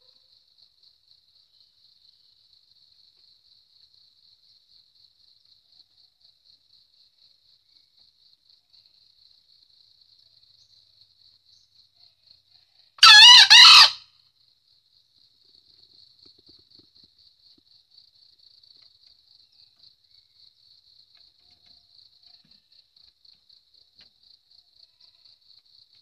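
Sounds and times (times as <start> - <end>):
insect chirping: 0.0 - 26.0
rooster crowing: 13.0 - 14.0.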